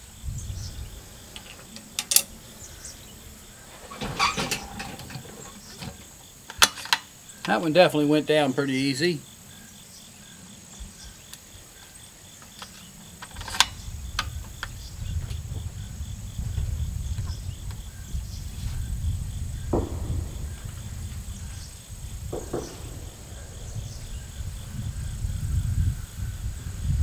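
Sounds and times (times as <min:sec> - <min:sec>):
crickets chirping: 0:00.0 - 0:27.0
low rumble: 0:13.9 - 0:27.0.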